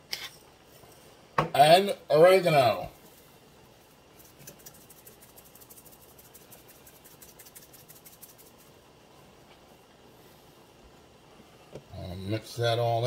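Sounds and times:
spice jar shaking: 0:04.1 - 0:08.8.

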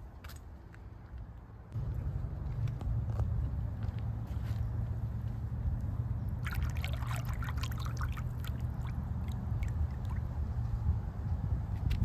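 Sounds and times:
creek water trickling over stones: 0:06.3 - 0:10.4.

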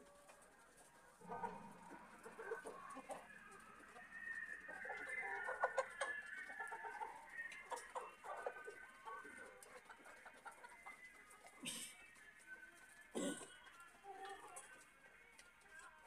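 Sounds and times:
hens clucking: 0:00.0 - 0:12.1.

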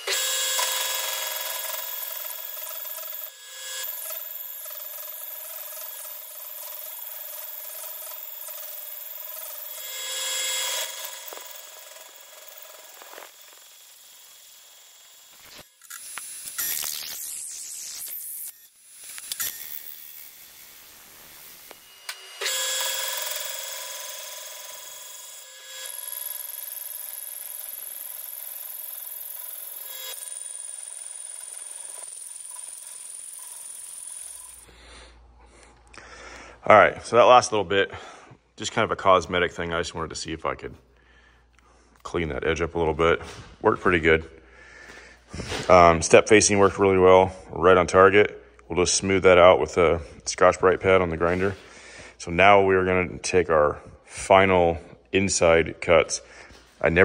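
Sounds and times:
boring machine scraping steel: 0:00.0 - 0:34.7.

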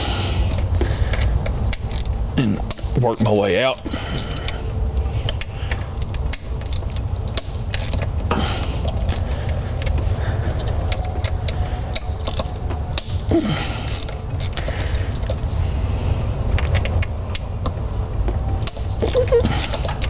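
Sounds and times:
steady low hum: 0:00.0 - 0:20.0
small ratchet clicking: 0:00.5 - 0:02.9, 0:05.3 - 0:10.0, 0:13.9 - 0:15.3.

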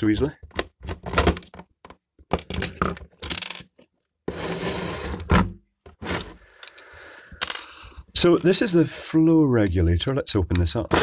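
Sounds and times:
hard plastic parts clicking: 0:09.6 - 0:11.0.

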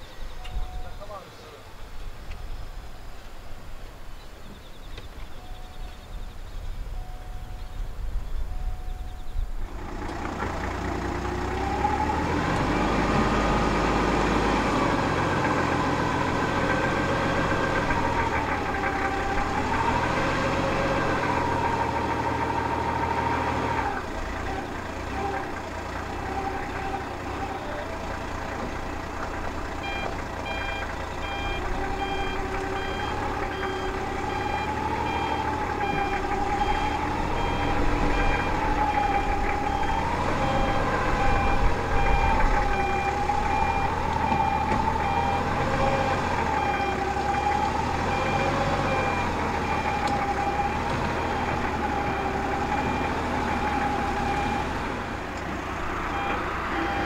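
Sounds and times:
faint regular beeping: 0:00.3 - 0:01.5, 0:05.0 - 0:09.5, 0:29.8 - 0:47.6, 0:56.1 - 0:57.0
turboprop engine whining: 0:05.1 - 0:57.0.

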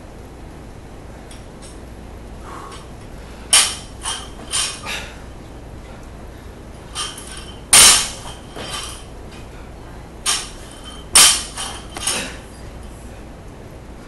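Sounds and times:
barbell dropping on rubber platform: 0:07.0 - 0:09.1, 0:10.2 - 0:12.4
plates and collars clanking: 0:07.0 - 0:09.1.

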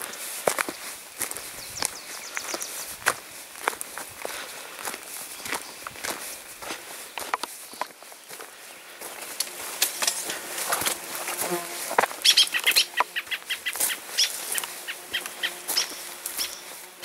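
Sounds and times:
footsteps on dirt path: 0:00.0 - 0:17.0
brush swishing and crackling: 0:09.6 - 0:17.0.

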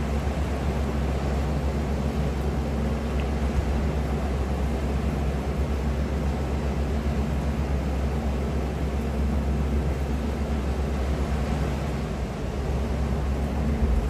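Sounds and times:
wind buffeting microphone: 0:11.1 - 0:14.0.

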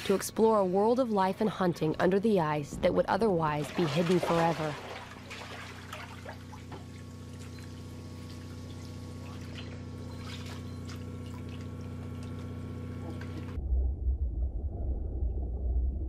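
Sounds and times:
steady low hum: 0:00.0 - 0:16.0
water sloshing and trickling: 0:03.4 - 0:13.6
short splashes: 0:03.6 - 0:13.6
wavering low rumble: 0:07.5 - 0:16.0.

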